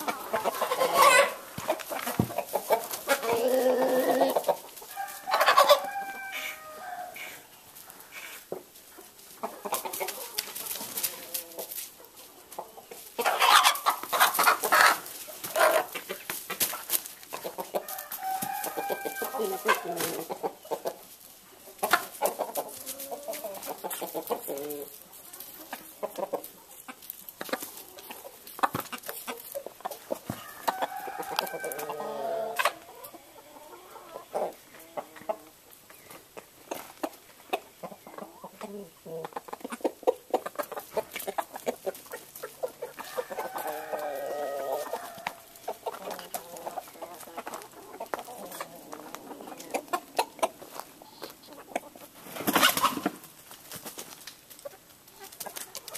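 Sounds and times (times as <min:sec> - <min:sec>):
chickens clucking: 0:00.0 - 0:55.9
chickens flapping flurry: 0:52.2 - 0:54.6.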